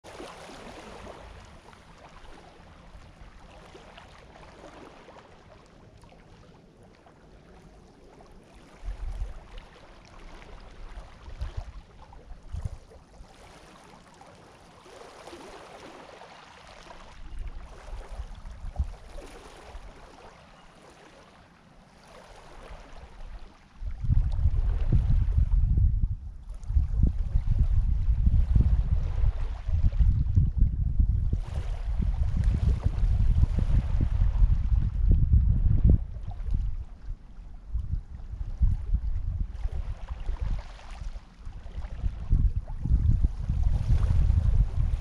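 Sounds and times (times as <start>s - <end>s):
wind buffeting microphone: 10.6s - 13.0s, 17.2s - 20.0s, 23.8s - 45.0s.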